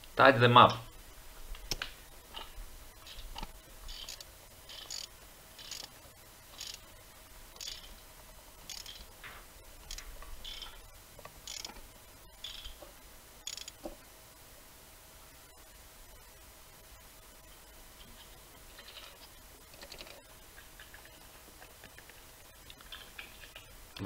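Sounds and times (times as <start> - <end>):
ratchet wrench clicking: 3.9 - 5.9, 6.6 - 6.8, 7.6 - 7.9, 8.7 - 9.0, 11.5 - 11.7, 13.4 - 13.8.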